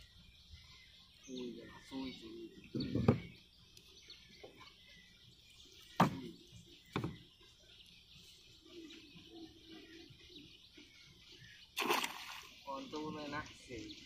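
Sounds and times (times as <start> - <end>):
faint bird chirping: 0.0 - 14.0
bamboo pole knocking against boat: 6.9 - 7.2.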